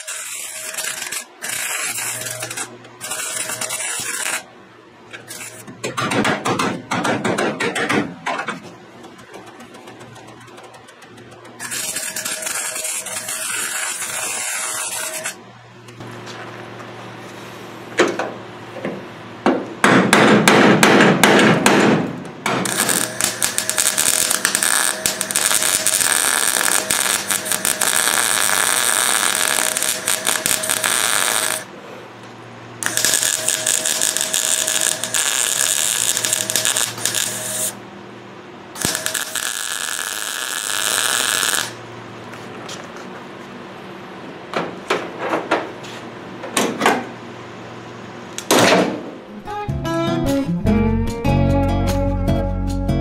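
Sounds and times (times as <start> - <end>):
welder crackling: 0.0 - 4.5, 9.0 - 16.0, 22.6 - 31.7, 32.8 - 37.8, 38.8 - 41.9.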